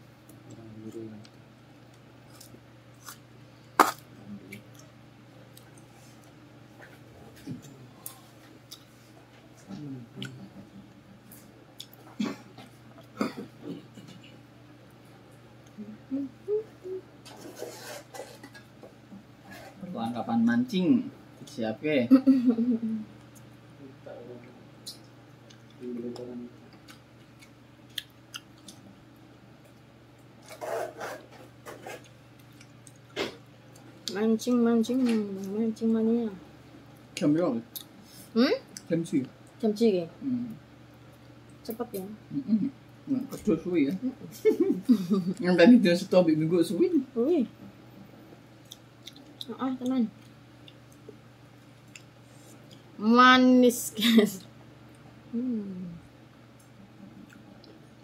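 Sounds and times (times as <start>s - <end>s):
steady low hum: 0.0s - 58.0s
soft chewing: 3.8s - 19.9s, 23.1s - 23.7s, 24.4s - 36.0s, 36.8s - 39.6s, 40.5s - 41.7s, 47.6s - 53.0s, 55.9s - 58.0s.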